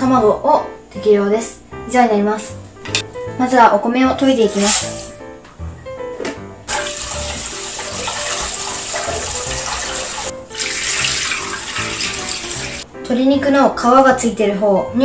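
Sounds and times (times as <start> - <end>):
tap water running into pot: 6.7 - 12.8.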